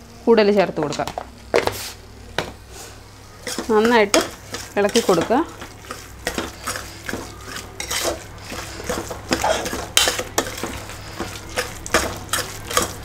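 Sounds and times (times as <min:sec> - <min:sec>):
metal spoon scraping a pot: 0:03.4 - 0:13.0.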